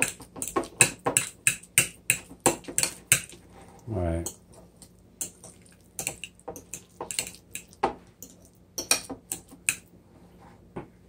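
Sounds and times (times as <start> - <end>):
fork clinking and scraping bowl: 0.0 - 3.4, 5.2 - 9.9.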